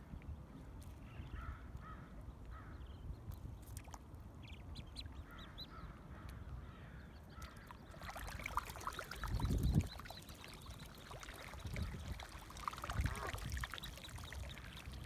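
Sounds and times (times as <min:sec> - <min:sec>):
ducklings peeping: 0:04.4 - 0:06.1, 0:07.2 - 0:15.0.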